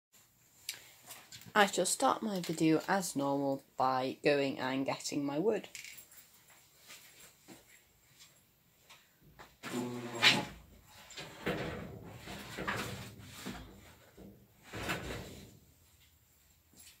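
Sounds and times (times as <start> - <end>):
door creaking on hinges: 9.6 - 13.1
knocks and scrapes: 9.6 - 15.8.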